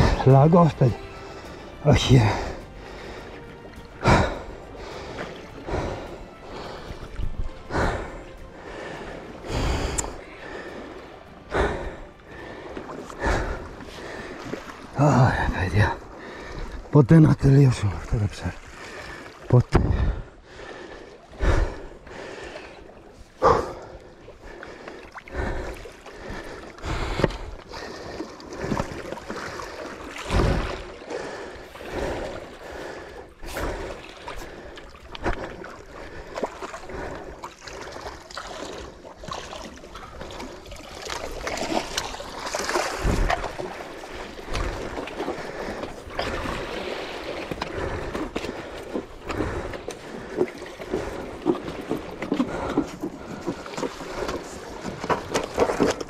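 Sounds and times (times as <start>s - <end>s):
sea water splashing on rocks: 33.4s - 56.0s.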